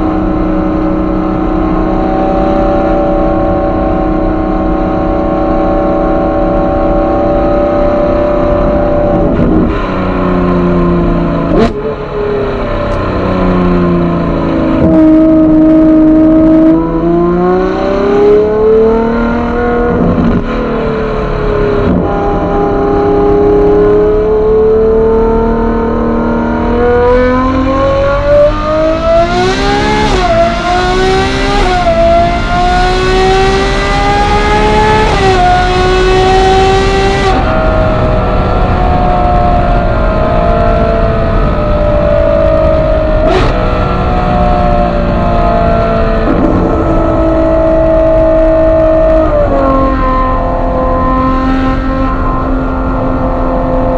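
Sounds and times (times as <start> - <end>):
car engine accelerating: 0.0 - 53.9
exhaust crack: 37.2 - 50.7.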